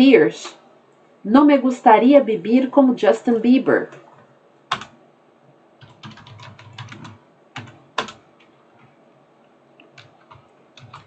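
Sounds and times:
keyboard typing: 3.9s - 5.0s, 5.8s - 9.0s, 9.8s - 11.0s.

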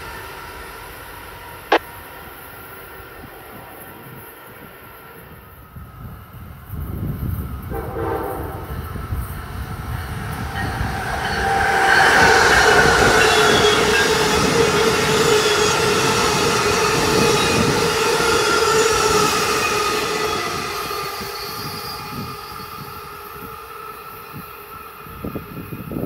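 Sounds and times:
train passing at speed: 0.0s - 26.0s.

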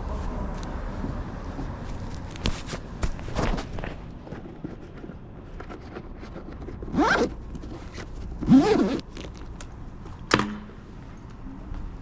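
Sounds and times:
zipper pulled in short rasps: 6.8s - 9.5s.

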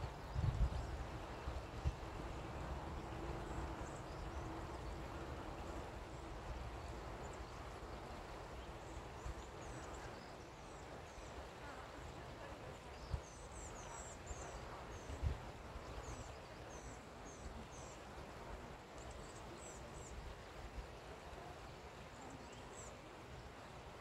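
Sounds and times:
wind rumble on microphone: 0.0s - 10.2s, 11.4s - 16.2s.

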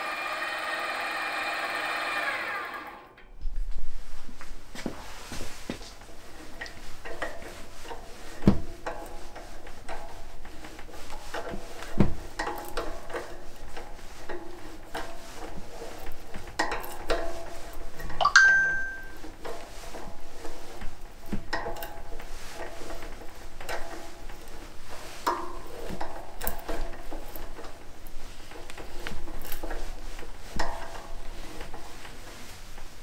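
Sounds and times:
brief metallic ring: 18.2s - 19.2s.

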